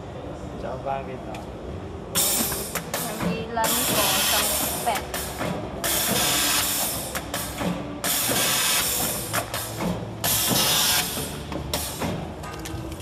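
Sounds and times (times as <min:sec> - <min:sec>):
pneumatic air hiss bursts: 0:02.2 - 0:12.1.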